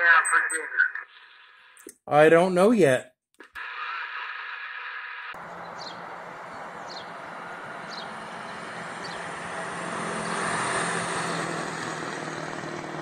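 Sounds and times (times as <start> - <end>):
bus driving past: 5.4 - 13.0.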